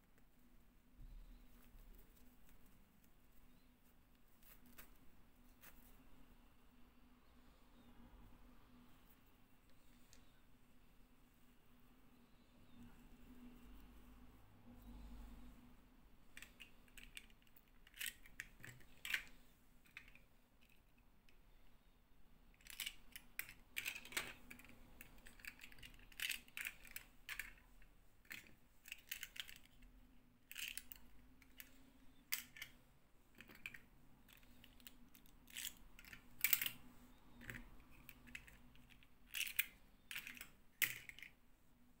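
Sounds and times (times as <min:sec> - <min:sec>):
faint steady hum: 0:00.0 - 0:42.0
plastic doll pieces clicking: 0:16.4 - 0:21.0, 0:22.6 - 0:27.6, 0:28.2 - 0:32.8, 0:33.4 - 0:41.4.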